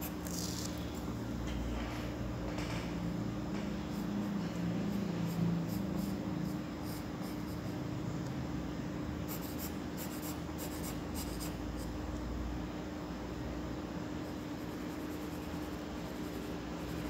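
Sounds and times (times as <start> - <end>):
pencil scratching on paper: 9.3 - 11.6, 14.4 - 17.0.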